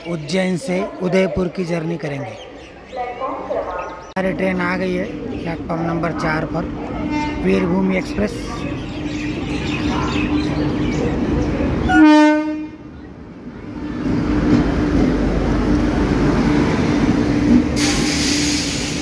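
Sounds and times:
train rumbling and clattering: 4.2 - 19.0
train horn blast: 7.0 - 7.7, 11.9 - 12.9.

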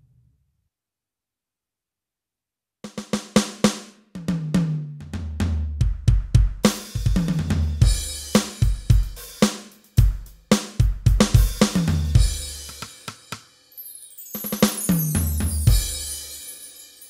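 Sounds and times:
kick snare and tom hits: 5.7 - 13.5
cymbal crashes: 14.5 - 17.0.

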